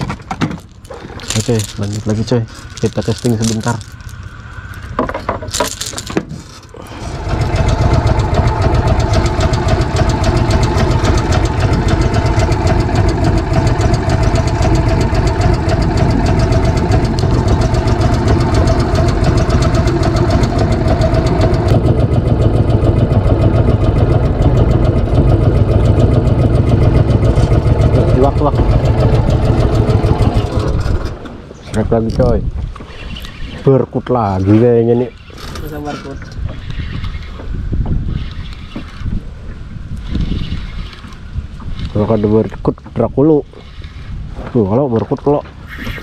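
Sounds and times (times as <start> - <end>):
outboard motor running: 0.5 - 33.5, 39.9 - 44.3.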